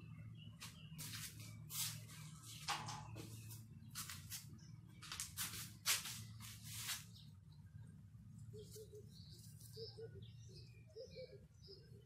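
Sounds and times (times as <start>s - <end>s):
rustling and scuffing in hands: 0.6s - 7.3s.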